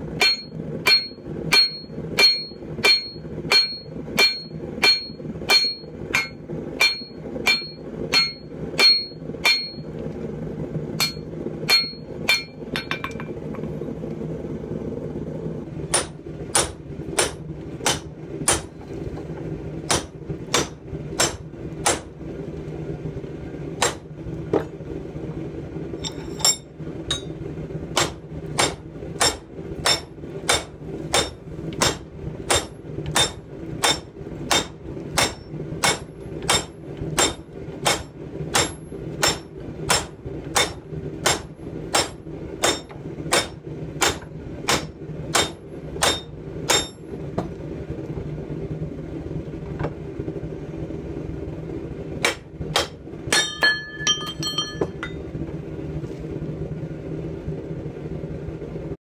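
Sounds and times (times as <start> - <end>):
low hum: 0.0 - 59.0
anvil ringing: 0.2 - 9.9, 11.0 - 13.3, 53.3 - 55.2
hammer striking steel on anvil: 0.2 - 9.9, 11.0 - 13.4, 15.9 - 18.8, 19.9 - 22.1, 23.8 - 24.1, 26.0 - 47.1, 52.2 - 55.2.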